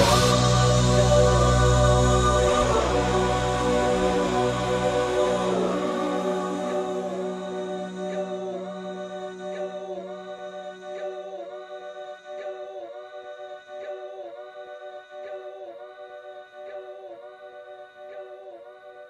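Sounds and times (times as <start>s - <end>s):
low drone: 0.0s - 11.8s
choir-like held chord: 0.0s - 19.0s.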